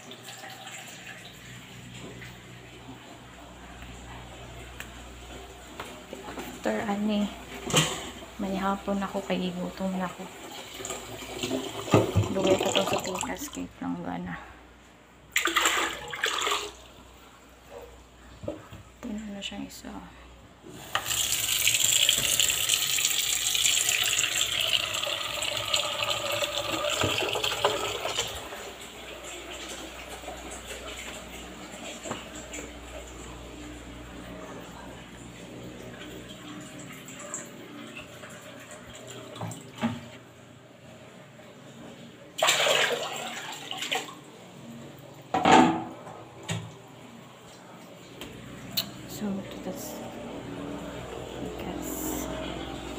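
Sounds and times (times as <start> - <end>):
tap water running into a bowl: 10.4 - 13.5, 20.7 - 33.4
water splashing from a basin: 15.3 - 17.0, 42.4 - 44.3.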